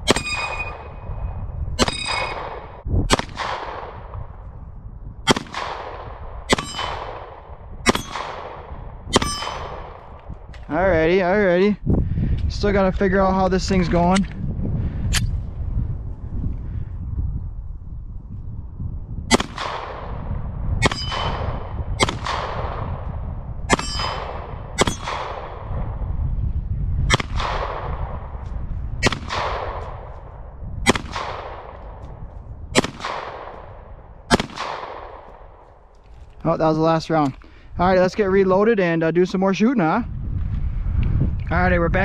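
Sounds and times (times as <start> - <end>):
bullets ringing steel target: 0.0 - 1.0, 1.8 - 2.6, 6.5 - 7.2, 7.9 - 8.4, 9.1 - 9.9, 20.8 - 22.4, 23.7 - 25.4
pistol shots with echo: 0.0 - 1.0, 1.8 - 4.2, 5.3 - 10.1, 19.3 - 20.2, 20.8 - 23.0, 23.7 - 25.8, 27.1 - 28.2, 29.0 - 30.2, 30.8 - 32.0, 32.8 - 35.6.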